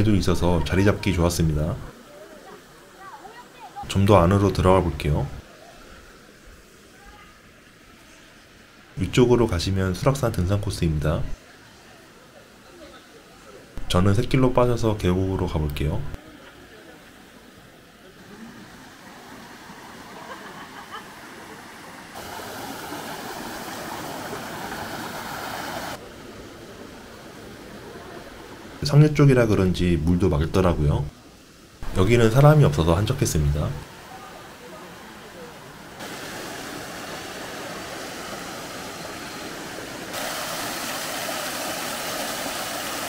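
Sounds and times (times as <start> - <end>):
stream water over rocks: 16.2 - 28.8, 31.2 - 43.0.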